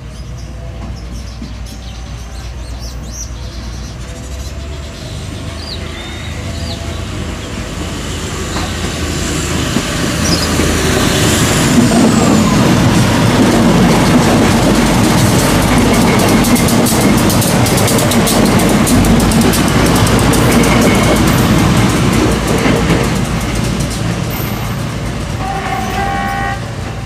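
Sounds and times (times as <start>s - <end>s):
passenger train passing: 0.0s - 27.0s
wheels clattering over rail joints: 8.5s - 27.0s.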